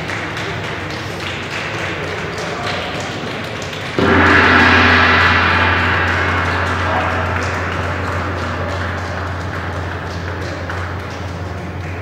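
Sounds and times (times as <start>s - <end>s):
gong ringing: 4.0s - 12.0s.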